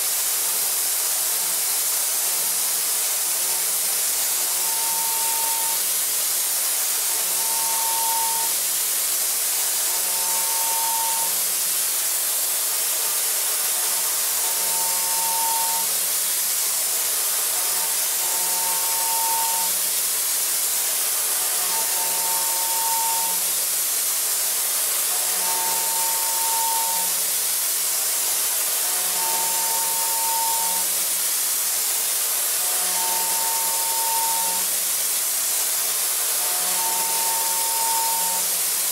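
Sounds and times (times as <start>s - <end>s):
end mill cutting metal: 3.2s - 6.0s, 6.9s - 8.6s, 9.2s - 11.7s, 13.2s - 16.1s, 16.8s - 23.5s, 25.0s - 34.8s, 35.5s - 38.8s
coolant spray hiss: 34.6s - 36.4s.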